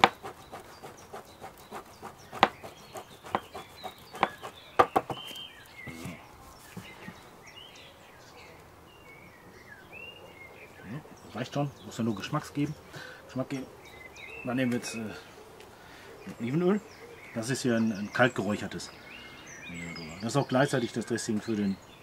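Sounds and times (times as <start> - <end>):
cheese grating on metal grater: 0.0 - 4.6
small birds chirping: 0.0 - 22.0.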